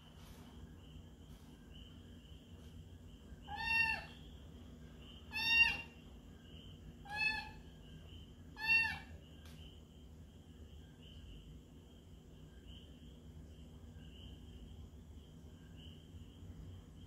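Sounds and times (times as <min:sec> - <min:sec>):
kitten meowing: 0:03.5 - 0:04.2, 0:05.3 - 0:05.9.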